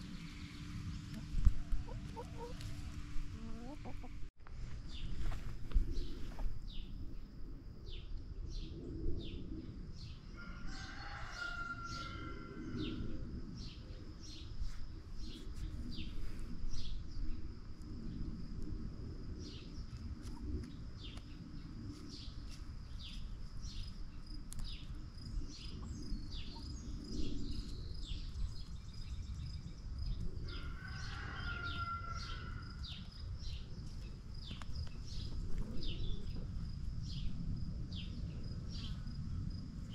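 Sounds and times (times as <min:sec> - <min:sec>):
small birds chirping: 0:00.0 - 0:04.3, 0:19.4 - 0:39.1
chickens clucking softly: 0:01.1 - 0:04.3, 0:34.7 - 0:36.6
insect trill: 0:23.7 - 0:39.9.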